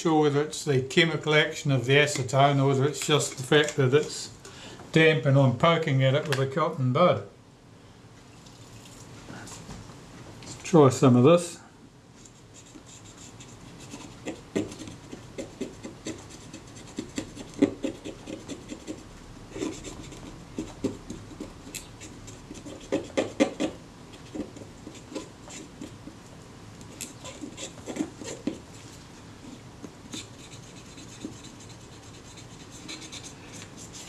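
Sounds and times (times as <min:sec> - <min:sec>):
cotton bud scratching metal: 0:12.2 - 0:26.1, 0:26.9 - 0:28.6, 0:29.4 - 0:34.0.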